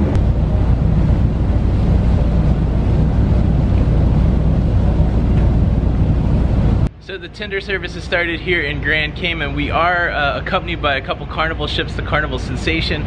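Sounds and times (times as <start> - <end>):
wind buffeting microphone: 0.0 - 6.9
low rumble: 0.0 - 13.0
sea and ship noise: 0.0 - 13.0.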